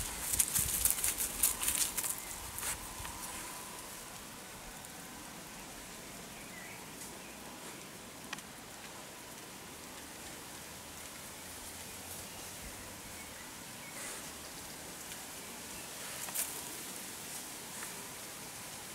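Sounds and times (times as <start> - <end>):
rustling in dry grass: 0.0 - 5.8, 11.0 - 18.9
faint outdoor hiss: 0.0 - 18.9.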